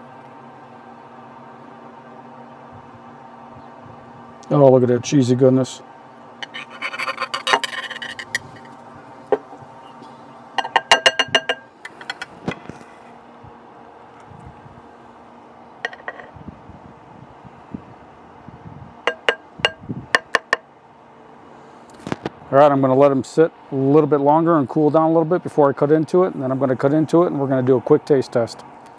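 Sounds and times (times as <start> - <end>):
metal spatula scraping dish: 6.4 - 8.7.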